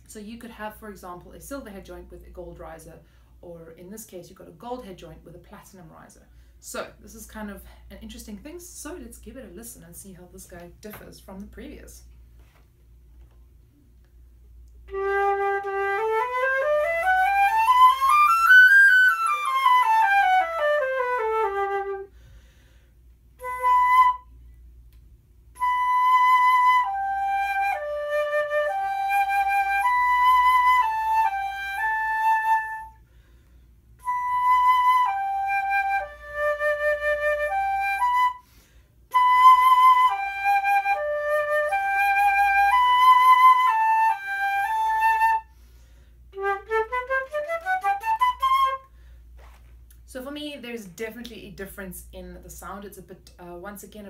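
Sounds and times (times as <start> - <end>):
solo flute melody: 14.8 - 22.2, 23.3 - 24.6, 25.5 - 33.0, 34.0 - 38.5, 39.1 - 45.6, 46.3 - 49.0.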